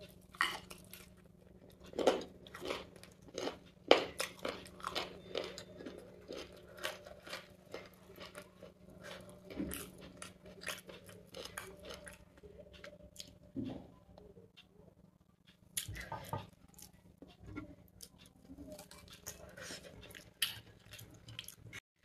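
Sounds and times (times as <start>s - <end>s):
person chewing food: 0.0s - 14.8s, 15.4s - 21.8s.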